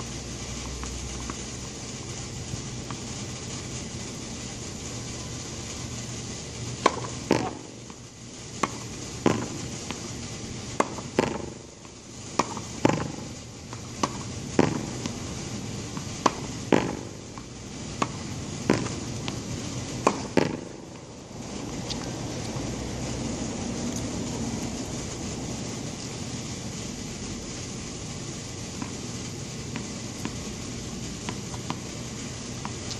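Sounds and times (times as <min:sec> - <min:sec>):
racket hitting tennis ball: 0:06.8 - 0:08.0, 0:08.6 - 0:10.1, 0:10.7 - 0:21.0, 0:29.7 - 0:30.6, 0:31.2 - 0:31.9
ball rebounding off wall: 0:08.6 - 0:10.0, 0:12.4 - 0:15.2, 0:16.0 - 0:17.2, 0:18.0 - 0:19.4, 0:20.0 - 0:20.8.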